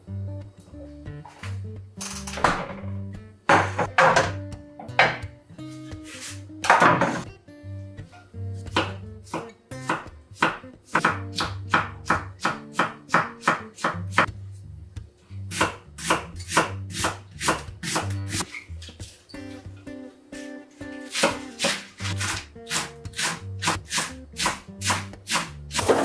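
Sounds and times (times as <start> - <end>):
knife chopping on wooden board: 8.7 - 14.3, 15.5 - 18.4, 21.1 - 26.0.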